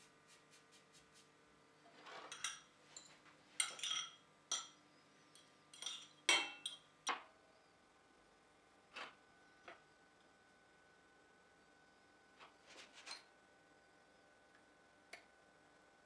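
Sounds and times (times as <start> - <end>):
fork clinking against ceramic bowl: 5.4 - 6.8.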